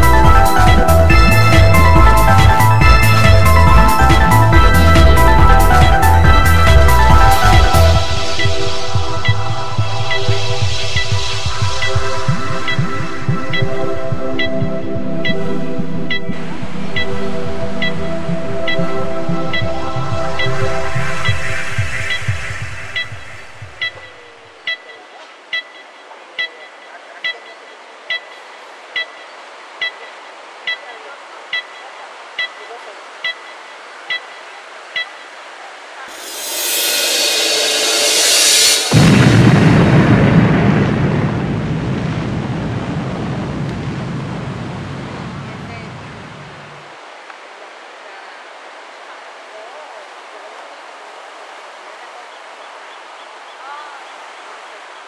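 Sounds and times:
short high-pitched beep: 4.0 - 25.8, 36.1 - 39.4
ocean waves breaking on beach: 36.0 - 47.6
ocean surf hissing: 36.1 - 41.2.

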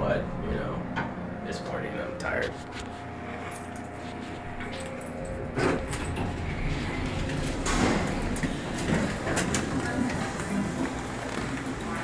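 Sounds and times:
elevator car rumble: 4.6 - 12.0
sliding doors swooshing: 5.6 - 12.0.

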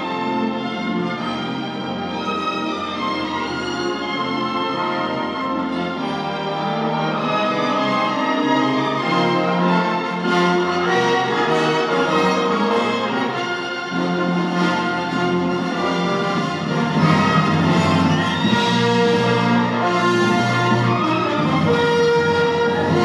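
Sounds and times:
orchestral music with strings and brass: 0.0 - 23.0.

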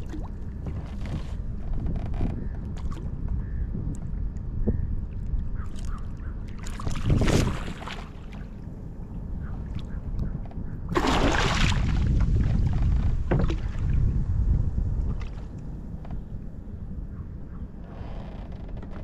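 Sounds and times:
wind rumble on microphone: 0.0 - 19.0
water splashing against kayak hull: 6.6 - 8.5, 10.9 - 14.2.

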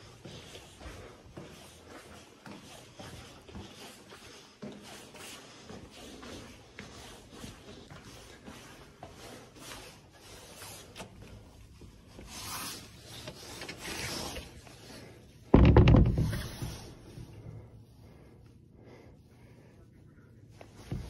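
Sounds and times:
clothing rubbing on microphone: 2.8 - 15.2.

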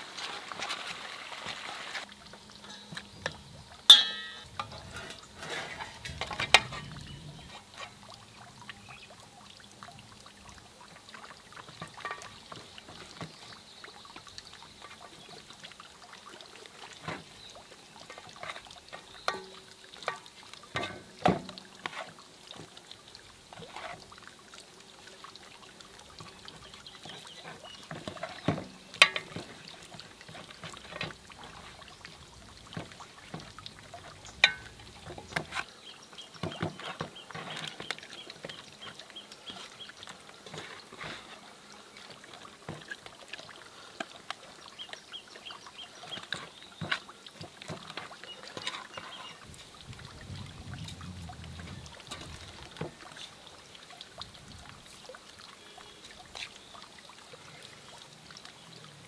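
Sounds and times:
faint steady hiss: 0.0 - 59.0
liquid sound: 0.0 - 59.0
utensils clinking on cookware: 2.6 - 7.9.

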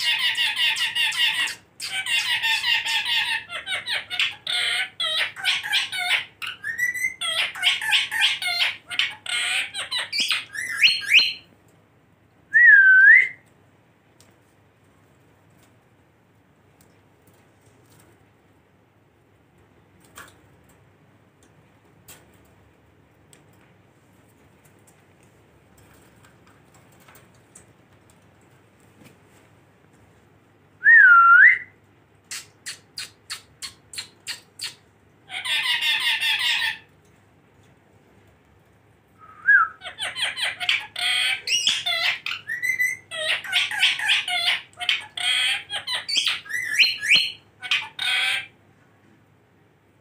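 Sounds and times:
parakeets squawking and chattering: 0.0 - 11.5, 32.3 - 36.9, 39.8 - 48.6.

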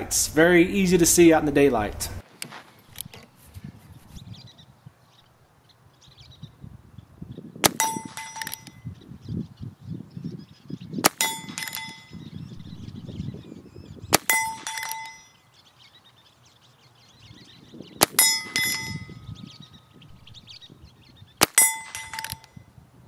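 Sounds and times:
revolver shots: 7.6 - 8.8, 10.9 - 13.2, 14.0 - 15.3, 17.9 - 19.6, 21.4 - 22.6
bullet ringing steel target: 7.6 - 9.0, 11.0 - 13.0, 14.1 - 15.5, 18.0 - 19.8, 21.4 - 22.7.

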